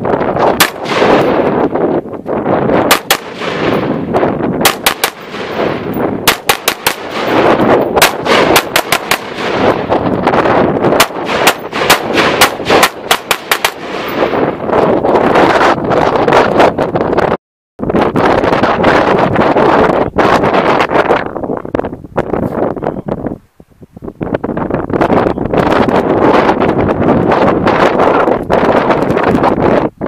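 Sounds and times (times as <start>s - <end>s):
wind on microphone: 0.0s - 30.0s
rifle shots: 0.5s - 1.8s, 2.8s - 14.7s.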